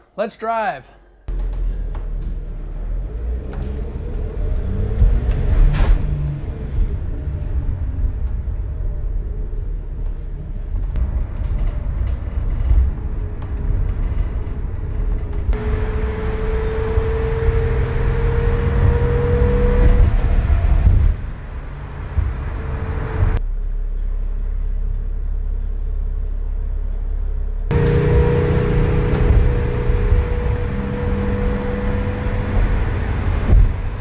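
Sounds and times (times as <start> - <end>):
van engine and tyre rumble: 1.3 - 34.0
rattles and clicks: 10.0 - 15.6
whine rising in pitch: 27.3 - 33.6.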